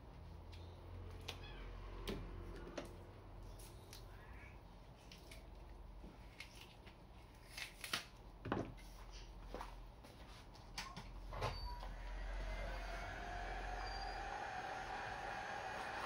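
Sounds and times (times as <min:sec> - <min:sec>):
heat gun fan blowing: 0:11.8 - 0:16.0.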